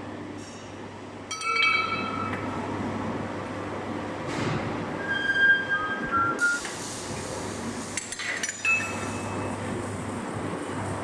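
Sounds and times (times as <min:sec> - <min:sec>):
steady low hum: 0:00.0 - 0:05.0, 0:08.8 - 0:11.0
high ringing squeals: 0:05.0 - 0:06.6.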